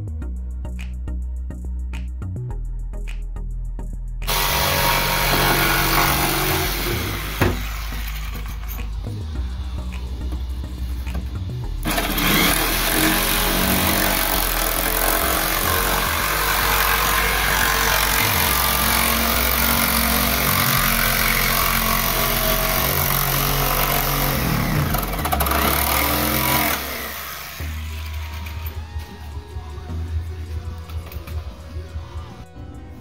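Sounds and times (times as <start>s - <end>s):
jigsaw cutting fiberglass: 4.3s - 8.5s, 11.8s - 28.5s.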